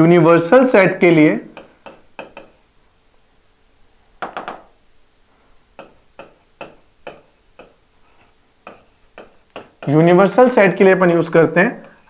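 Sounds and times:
stylus tapping on glass: 1.6s - 2.6s, 4.2s - 4.8s, 5.8s - 7.8s, 8.6s - 9.9s.

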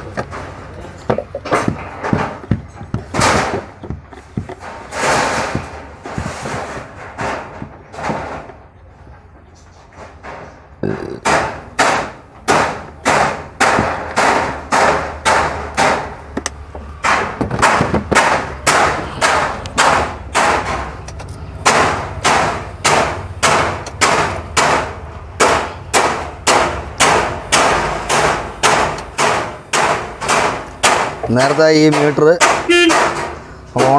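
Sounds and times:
sharp ringing knocks: 21.6s - 33.9s.

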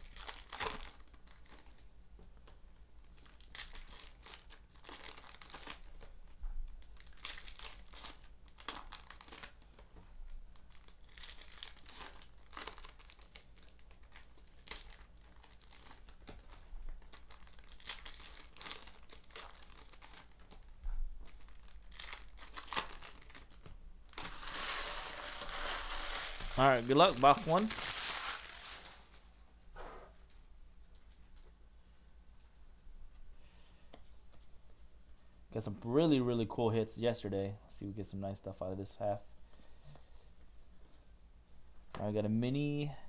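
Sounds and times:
foil wrappers crinkling and tearing: 0.0s - 1.8s, 3.1s - 6.1s, 6.7s - 29.3s.

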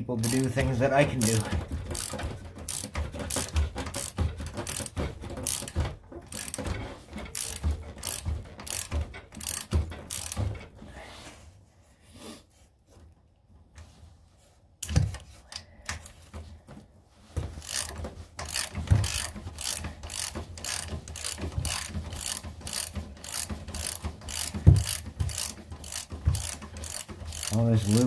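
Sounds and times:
ratchet wrench clicking: 0.2s - 10.4s, 17.6s - 28.0s.

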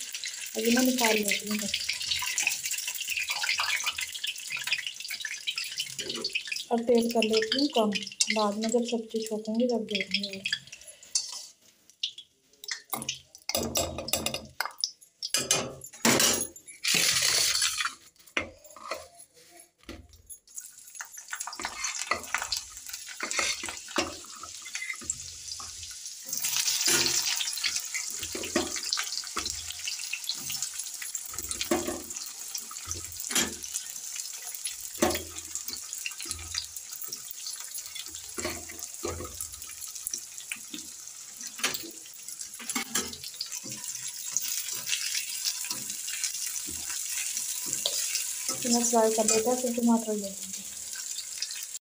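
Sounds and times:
hot oil sizzling: 0.0s - 51.8s
utensils clattering: 12.9s - 25.1s.

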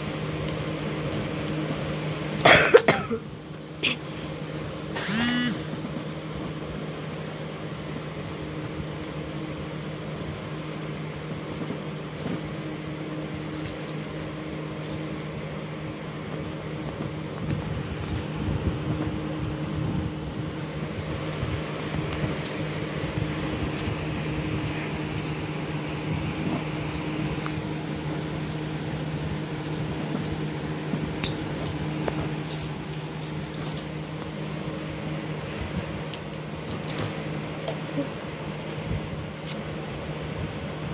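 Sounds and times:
steady low hum: 0.0s - 40.9s
handcuffs clicking and clinking: 10.3s - 15.3s, 20.8s - 23.9s, 24.6s - 28.6s, 29.4s - 34.4s, 36.0s - 37.5s.

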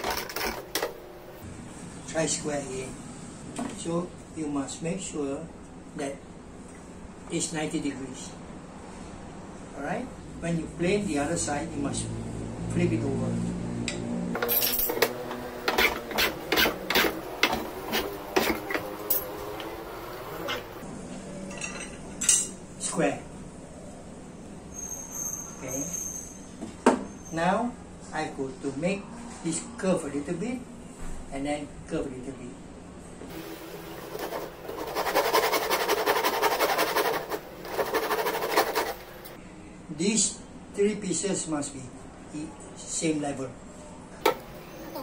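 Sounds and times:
hand saw rasping through wood: 15.1s - 20.8s, 34.0s - 39.4s
wood scraping across plane blade: 15.1s - 20.8s, 33.3s - 39.4s.

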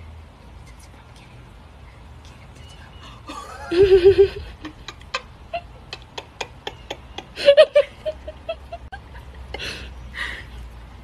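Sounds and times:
woman laughing softly: 3.0s - 10.6s.

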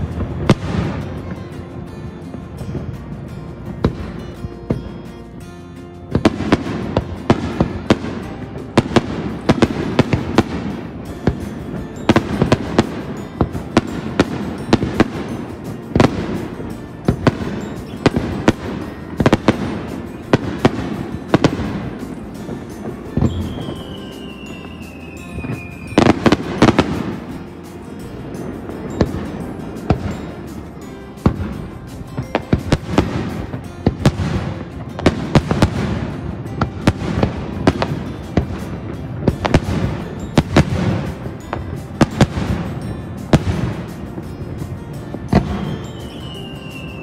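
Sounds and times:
firework bangs: 0.0s - 1.5s, 6.1s - 27.4s, 28.0s - 44.3s
firework bursts and crackles: 0.0s - 47.0s
falling firework whistle: 23.2s - 26.7s, 45.3s - 47.0s.

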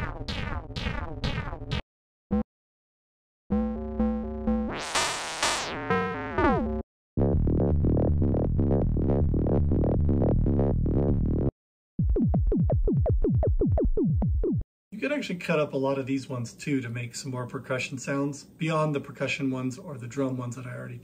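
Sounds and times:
synthesizer noise sweep: 3.5s - 10.0s
synthesizer note pattern: 3.5s - 10.2s.

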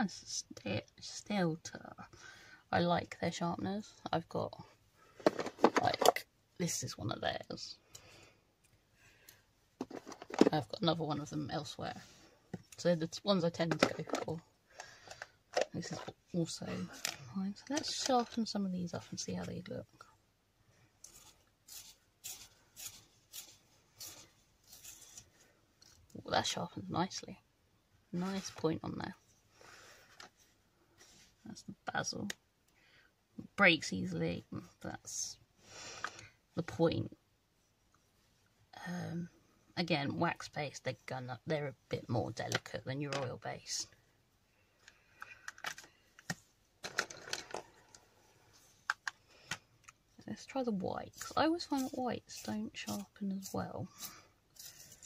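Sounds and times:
clatter on desk: 5.2s - 6.2s
pencils and plastic items clicking: 44.8s - 48.0s
pencil sharpener scraping: 51.1s - 55.0s.

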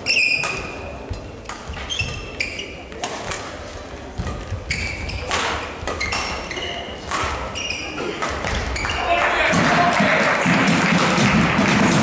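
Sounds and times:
shoes squeaking on court floor: 0.0s - 9.1s
rackets striking shuttlecock: 0.4s - 2.3s, 2.9s - 9.0s.

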